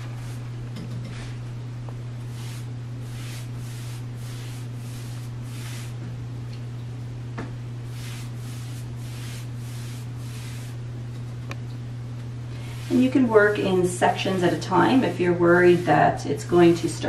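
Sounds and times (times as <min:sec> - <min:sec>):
steady low hum: 0:00.0 - 0:17.0
brush swishing paint onto wood: 0:02.2 - 0:06.0, 0:07.9 - 0:10.8, 0:12.6 - 0:17.0.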